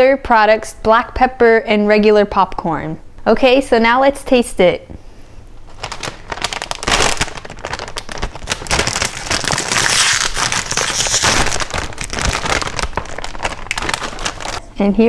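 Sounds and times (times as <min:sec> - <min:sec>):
snack bag crinkling: 0:05.6 - 0:14.6.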